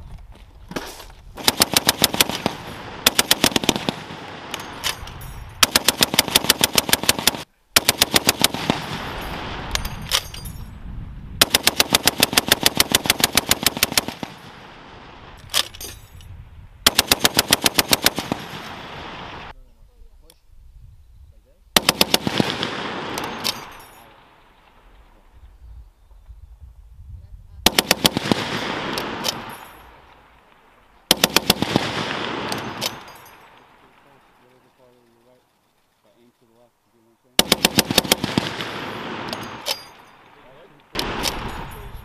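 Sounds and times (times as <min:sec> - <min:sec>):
heavy machine gun bursts: 0:01.4 - 0:05.0, 0:05.6 - 0:09.2, 0:11.4 - 0:14.4, 0:31.1 - 0:33.1, 0:37.4 - 0:39.8.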